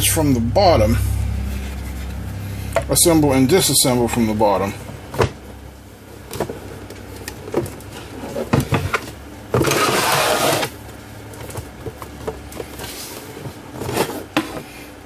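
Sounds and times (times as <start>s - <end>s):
case scraping on wooden bench: 7.6s - 10.8s.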